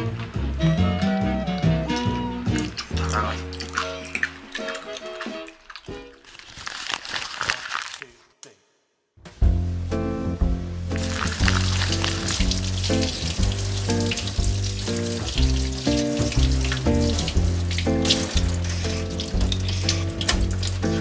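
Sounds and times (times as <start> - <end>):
background music melody: 0.0 - 6.3, 9.3 - 21.0
tap water splashing into sink: 11.0 - 21.0.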